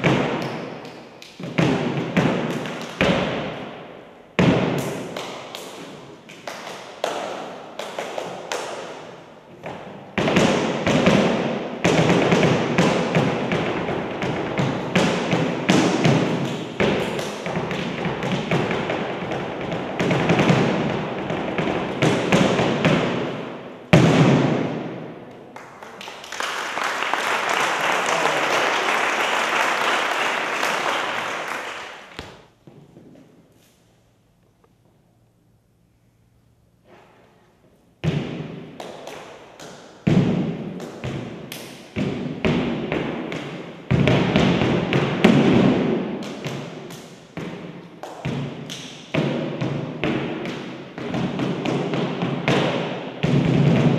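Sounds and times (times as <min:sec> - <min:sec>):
hand claps: 0:00.0 - 0:01.6, 0:02.2 - 0:03.1, 0:04.8 - 0:09.1, 0:16.2 - 0:18.4, 0:25.3 - 0:32.4, 0:38.8 - 0:40.0, 0:40.8 - 0:42.0, 0:48.0 - 0:49.1
applause: 0:25.5 - 0:32.2.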